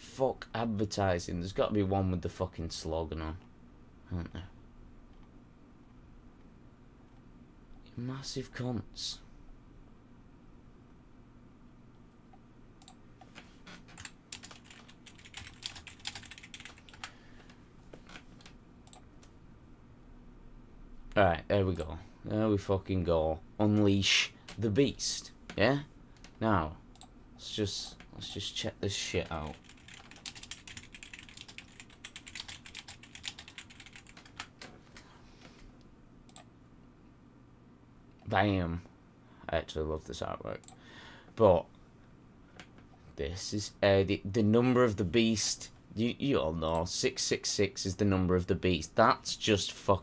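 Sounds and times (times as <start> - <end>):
typing on computer keyboard: 13.9 - 17.1, 29.5 - 34.7.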